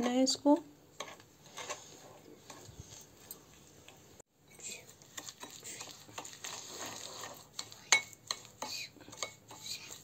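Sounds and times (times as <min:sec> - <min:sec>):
metal spoon scraping glass bowl: 0:01.0 - 0:03.4.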